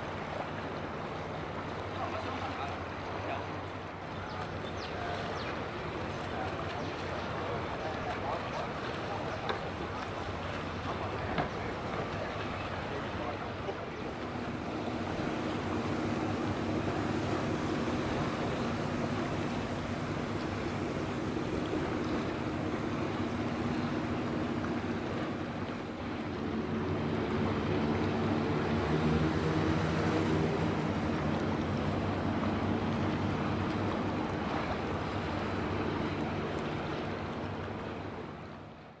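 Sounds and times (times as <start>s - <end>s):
bow wash rushing: 0.0s - 39.0s
passing boat engine: 0.0s - 39.0s
diesel engines running: 9.6s - 38.6s.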